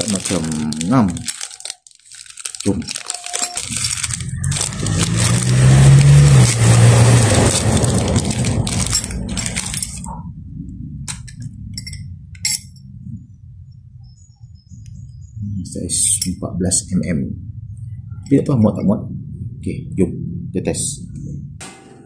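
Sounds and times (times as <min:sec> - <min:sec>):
plastic wrapping crinkling and tearing: 0:00.0 - 0:10.1
metal tool clinking: 0:08.2 - 0:10.1, 0:11.1 - 0:12.9.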